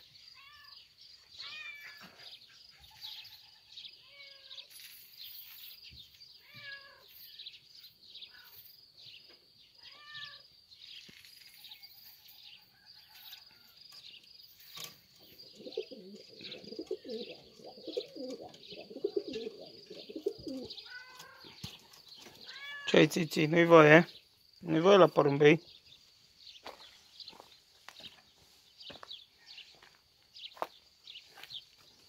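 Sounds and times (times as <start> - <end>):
cat meowing faintly: 6.4 - 7.1, 9.8 - 10.4, 20.8 - 21.6, 22.4 - 23.0.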